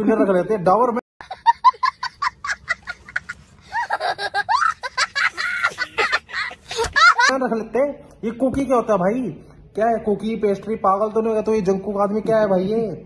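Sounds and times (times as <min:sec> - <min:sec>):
young boy laughing: 0:01.2 - 0:07.3.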